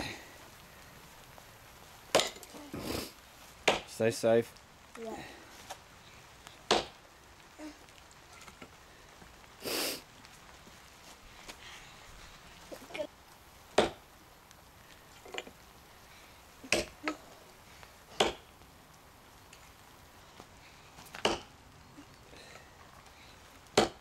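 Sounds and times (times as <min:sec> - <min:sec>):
tomahawk chopping into log: 0:13.8 - 0:14.0, 0:23.8 - 0:24.0.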